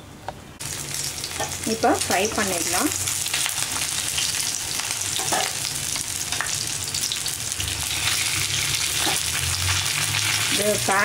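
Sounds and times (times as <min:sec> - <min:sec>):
oil sizzling and crackling: 0:00.6 - 0:11.0
metal spatula in a pan: 0:05.1 - 0:05.6, 0:07.9 - 0:11.0.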